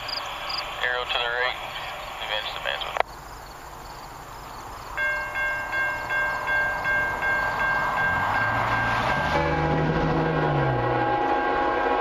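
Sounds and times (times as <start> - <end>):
freight train approaching: 0.0 - 12.0
level crossing warning bell: 4.9 - 12.0
low drone: 5.8 - 12.0.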